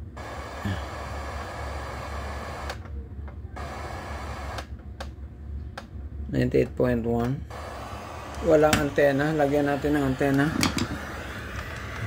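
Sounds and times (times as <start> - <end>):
radio static hiss: 0.0 - 2.8, 3.6 - 4.6, 7.5 - 12.0.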